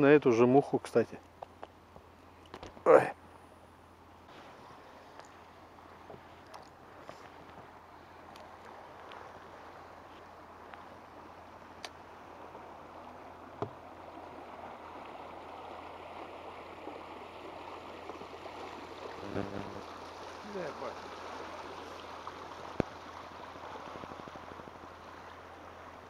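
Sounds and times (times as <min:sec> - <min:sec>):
river current rushing and gurgling: 0:00.0 - 0:26.0
light knocks on boat: 0:06.0 - 0:06.3, 0:13.6 - 0:13.8.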